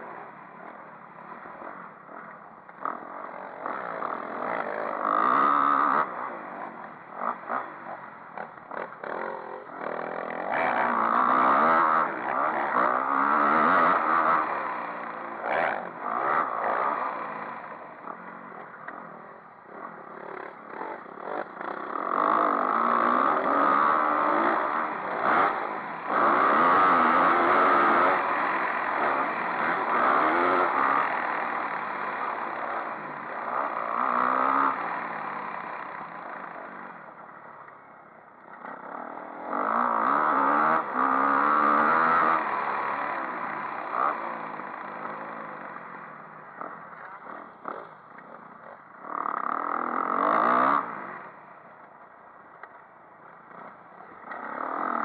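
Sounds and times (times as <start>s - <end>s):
motorbike engine revving: 3.6s - 19.1s, 19.7s - 36.8s, 38.5s - 45.8s, 49.0s - 51.3s.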